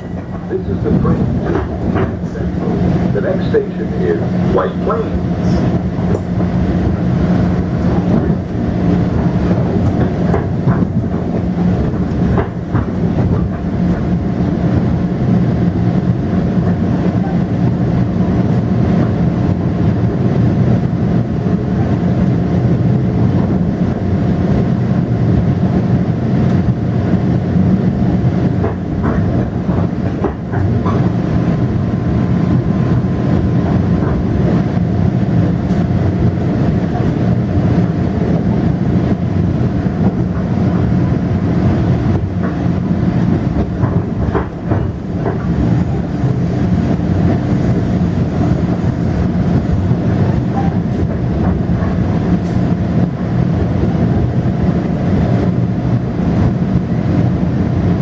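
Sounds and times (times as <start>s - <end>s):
wheels clicking over rail joints: 0.0s - 2.8s, 7.8s - 14.2s, 28.4s - 31.2s, 43.5s - 46.1s
train electric hum: 0.0s - 58.0s
wheels rumbling on rails: 0.0s - 58.0s.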